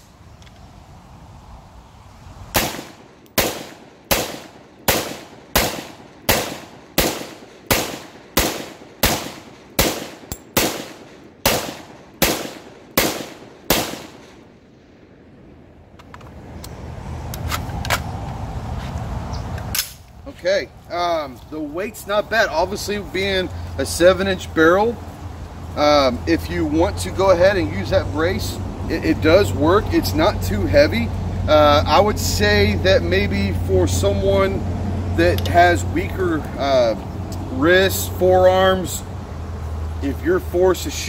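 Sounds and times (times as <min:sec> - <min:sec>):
rifle pistol shots: 0:02.6 - 0:14.4.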